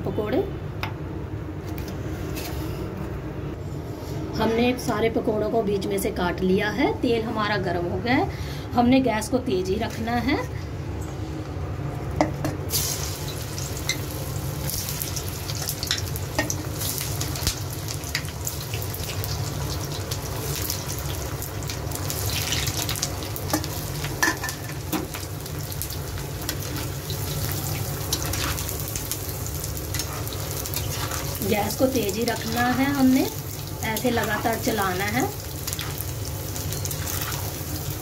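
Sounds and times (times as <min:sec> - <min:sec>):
food sizzling in hot oil: 0:12.7 - 0:38.0.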